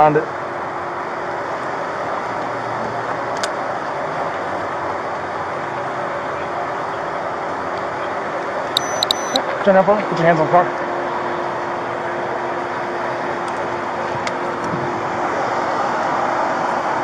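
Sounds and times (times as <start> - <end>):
steady vehicle noise: 0.0 - 17.0
short click: 8.8 - 9.4.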